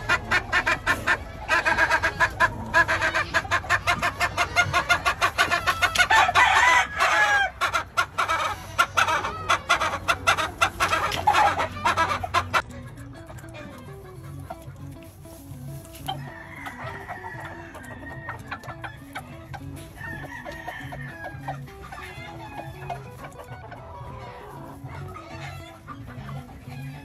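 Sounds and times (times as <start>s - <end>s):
chickens clucking: 0.0s - 27.0s
rooster crowing: 5.4s - 7.6s, 16.1s - 19.1s, 19.9s - 22.9s.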